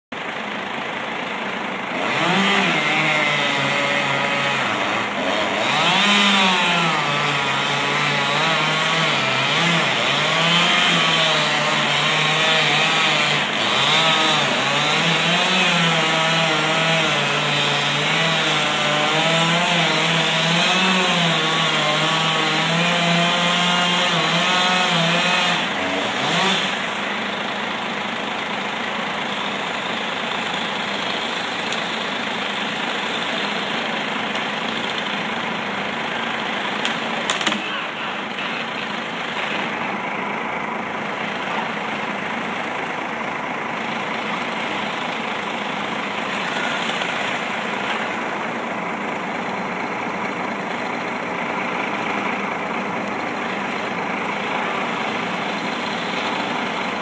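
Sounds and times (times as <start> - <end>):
excavator engine idling: 0.1 - 5.4, 26.8 - 57.0
chainsaw cutting tree trunk: 0.2 - 57.0.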